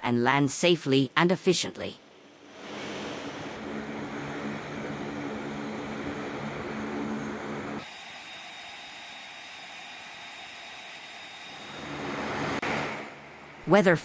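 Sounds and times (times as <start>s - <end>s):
aircraft engines droning: 1.7s - 13.9s
low hum: 2.0s - 7.8s, 10.2s - 13.7s.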